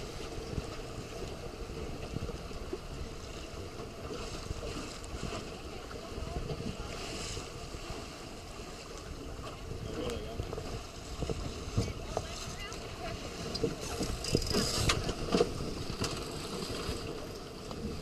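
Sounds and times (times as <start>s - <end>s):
water splashing: 0.0s - 18.0s
wind buffeting microphone: 9.1s - 18.0s.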